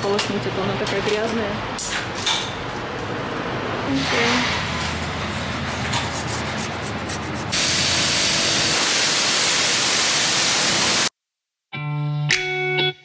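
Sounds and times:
pressure washer spraying water: 7.2 - 11.1.

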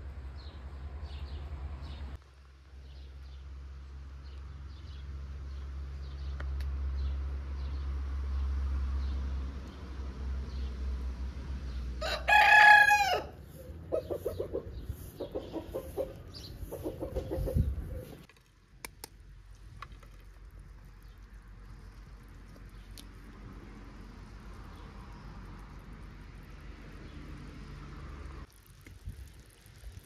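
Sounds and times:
rooster crowing: 12.0 - 13.4
chickens clucking: 13.5 - 18.3.

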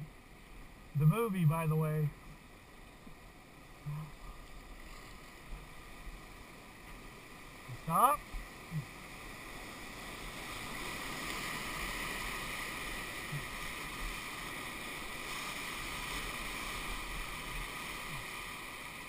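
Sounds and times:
whitewater rushing: 5.4 - 19.0.

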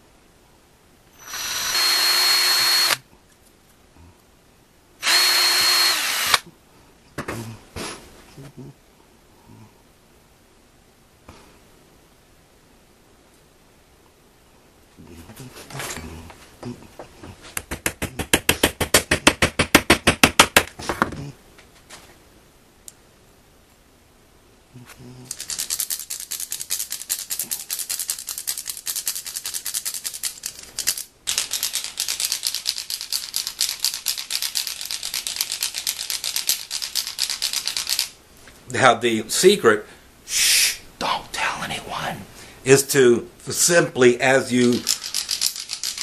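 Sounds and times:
wooden stick rattling clicks: 44.8 - 46.0.

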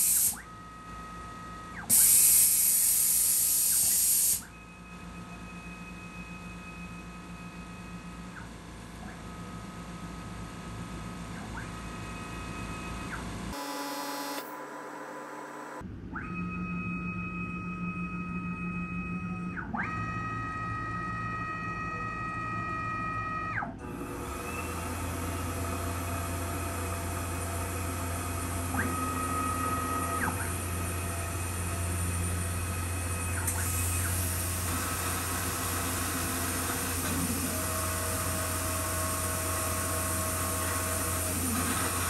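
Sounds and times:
motor whining: 23.9 - 42.0.

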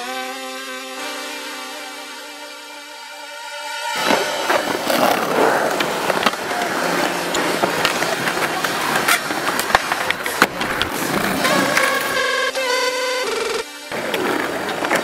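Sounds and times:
skateboard clacks: 4.0 - 12.5, 13.9 - 15.0
skateboard wheels rolling on concrete: 4.0 - 15.0.

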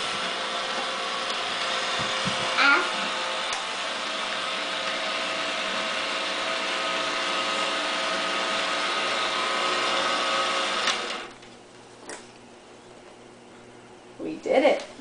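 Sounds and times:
toy motor whirring: 2.3 - 3.2.

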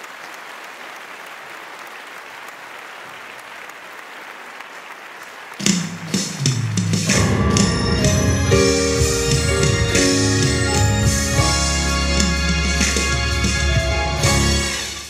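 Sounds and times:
congregation applauding: 0.0 - 15.0
drum hits: 5.6 - 14.6
band playing: 5.6 - 15.0
keyboard: 5.6 - 15.0.

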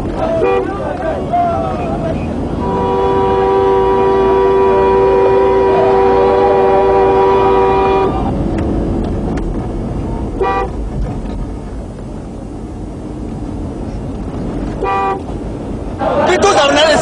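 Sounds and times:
vehicles driving on dirt road: 0.0 - 17.0
car horn blaring: 0.2 - 8.4, 10.3 - 10.8, 14.8 - 15.4
short horn toot: 2.6 - 8.3, 14.8 - 15.3.

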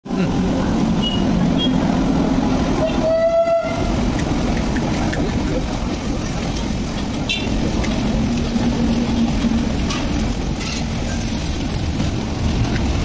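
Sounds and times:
low rumble of train on tracks: 0.1 - 13.0
train horn blast: 2.8 - 4.0.

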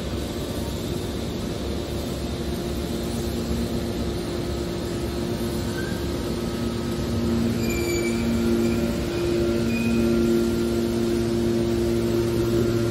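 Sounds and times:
hydraulic power unit humming: 0.0 - 12.9
high squeaks: 7.5 - 10.1.

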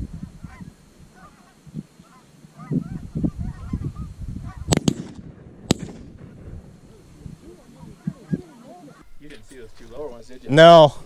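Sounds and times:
geese honking: 0.2 - 4.8, 6.8 - 9.2
low rumble: 3.8 - 8.0
sharp cracks: 4.7 - 6.6.

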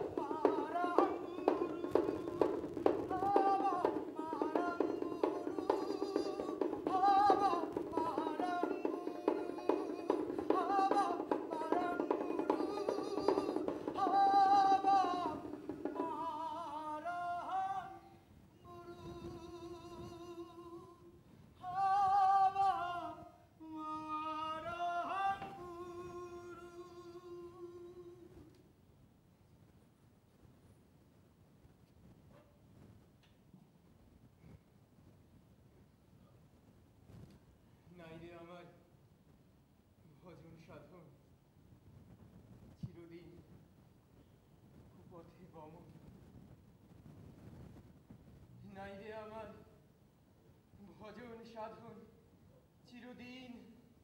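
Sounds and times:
rapid percussive taps: 0.0 - 16.8
person singing ornamented melody: 0.0 - 28.4.

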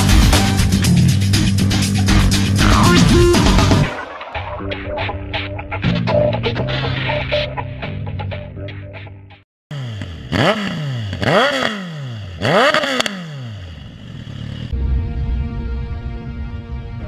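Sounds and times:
motorcycle engine revving: 9.7 - 14.8
low drone: 13.7 - 17.0.

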